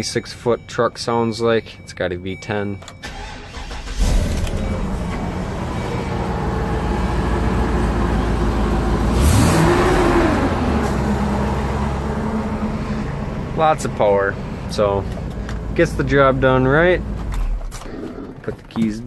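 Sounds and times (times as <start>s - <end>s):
truck engine running: 0.0s - 19.0s
engine rev: 3.1s - 18.4s.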